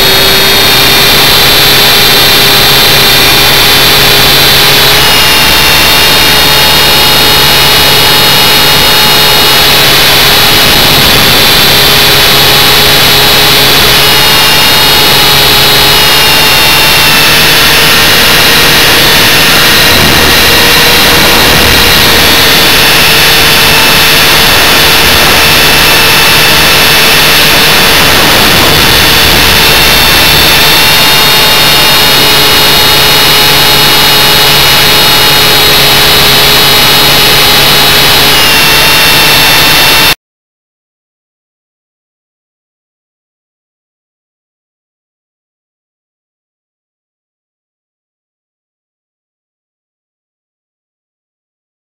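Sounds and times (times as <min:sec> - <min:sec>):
loud mechanical drone whining: 0:00.0 - 0:40.2.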